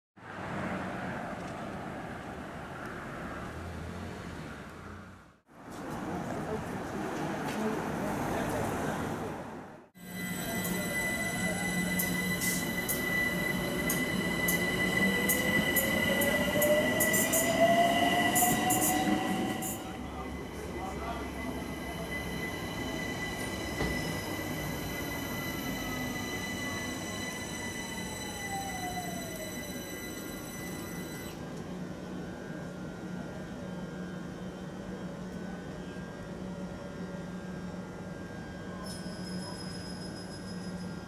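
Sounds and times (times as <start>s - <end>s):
electrical hum of train: 0.2s - 41.0s
train motor whine rising: 10.0s - 20.4s.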